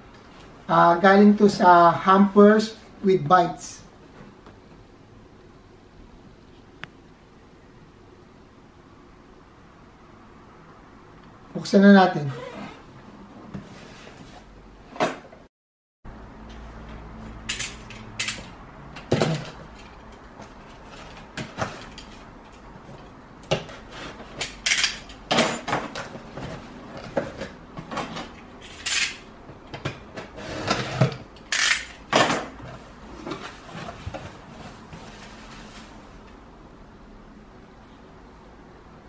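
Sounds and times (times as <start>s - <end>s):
knocks scrapes and rustles: 13.5s - 15.3s, 19.1s - 24.6s, 29.8s - 36.3s.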